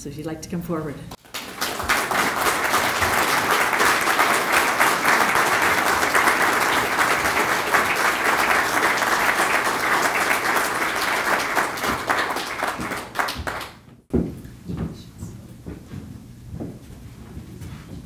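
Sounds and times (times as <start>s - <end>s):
audience clapping: 1.2s - 13.9s.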